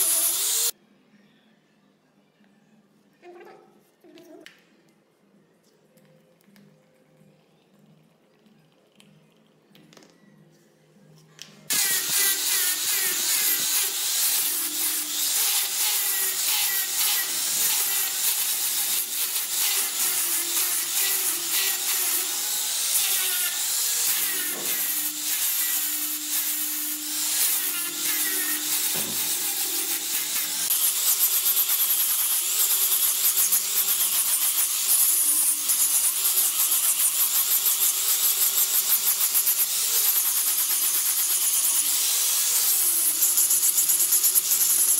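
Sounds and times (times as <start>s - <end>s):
angle grinder sanding wood: 0.0s - 0.7s, 11.7s - 44.9s.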